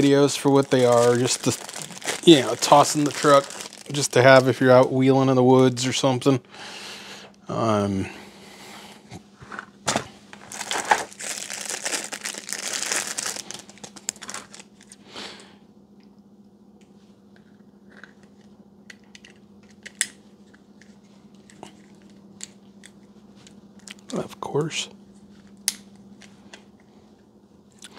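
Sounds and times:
plastic wrapping crinkling: 0.0s - 4.8s, 9.9s - 15.0s.

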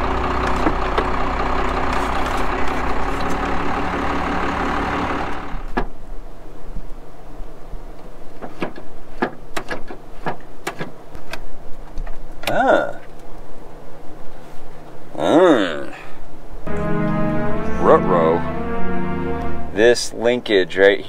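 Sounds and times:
truck engine idling: 0.0s - 5.7s.

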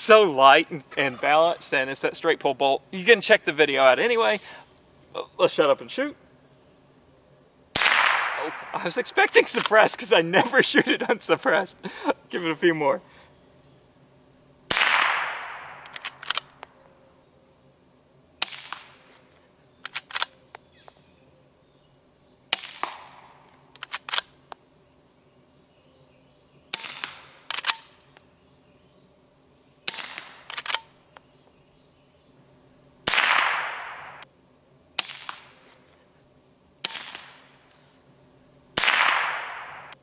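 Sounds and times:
rifle shots: 7.7s - 9.8s, 14.7s - 16.5s, 18.4s - 19.1s, 22.5s - 24.2s, 26.7s - 27.9s, 29.9s - 30.9s, 33.0s - 34.2s, 35.0s - 35.6s, 36.8s - 37.6s, 38.8s - 40.0s
gunshot echo: 7.8s - 8.8s, 14.7s - 16.2s, 29.9s - 30.5s, 33.1s - 34.2s, 36.8s - 37.5s, 38.8s - 40.0s
rifle bolt clicks: 15.6s - 16.6s, 19.8s - 20.4s, 23.8s - 24.3s, 27.0s - 27.9s, 30.2s - 30.9s.

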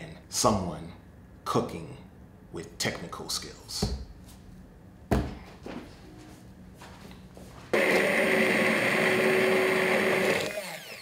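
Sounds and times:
immersion blender running: 7.8s - 11.0s.

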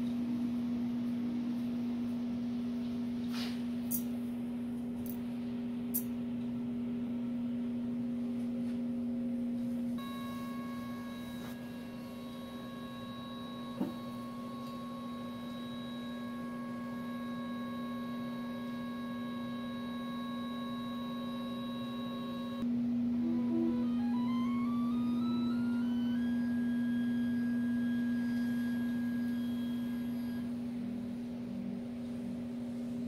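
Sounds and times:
electric motor whine: 10.0s - 30.9s.

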